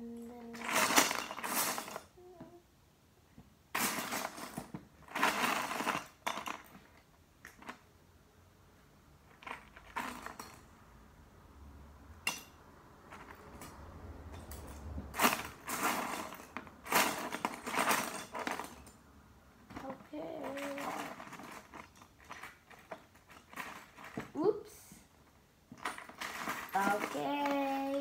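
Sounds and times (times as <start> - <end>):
plastic bricks clattering in a box: 3.8 - 7.8, 15.2 - 18.9, 19.7 - 24.3, 25.8 - 28.0.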